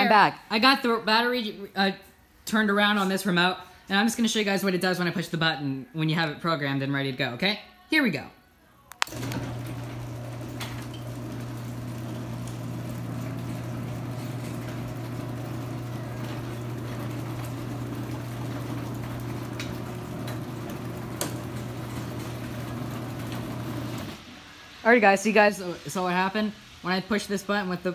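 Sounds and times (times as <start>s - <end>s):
garage door motor humming: 9.0s - 24.2s.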